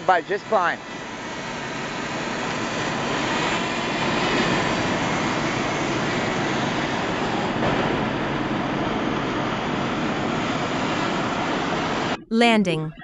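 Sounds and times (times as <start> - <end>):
drone propellers whirring: 0.0 - 12.2.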